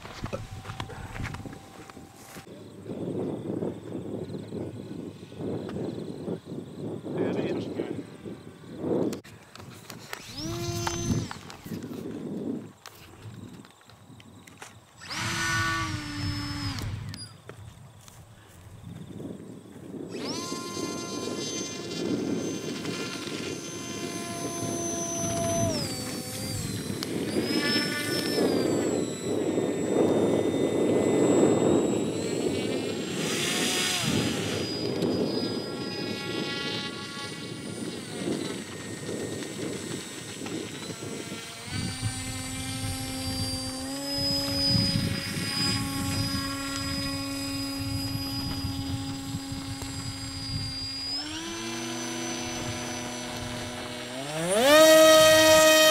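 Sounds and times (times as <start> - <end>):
lower-pitched motor running: 0.0 - 2.5, 10.1 - 11.8, 15.0 - 17.4, 20.0 - 55.9
model propeller motors whining: 0.0 - 2.5, 8.1 - 12.1, 14.6 - 17.4, 20.0 - 55.9.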